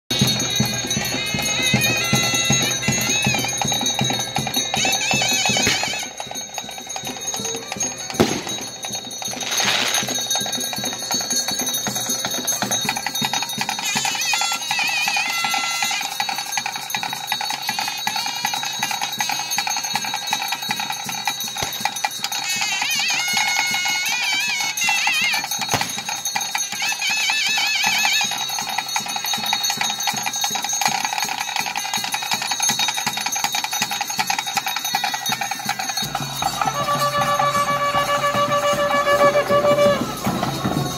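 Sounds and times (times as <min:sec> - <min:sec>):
wind instrument melody: 0:00.1 - 0:16.9, 0:21.6 - 0:30.0, 0:35.2 - 0:40.9
drums: 0:00.1 - 0:40.9
ringing bells: 0:00.1 - 0:40.9.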